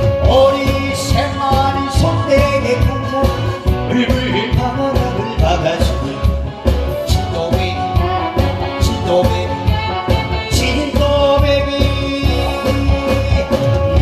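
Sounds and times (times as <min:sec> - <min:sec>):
backing track with drum beat: 0:00.0 - 0:14.0
man singing into microphone: 0:00.0 - 0:14.0.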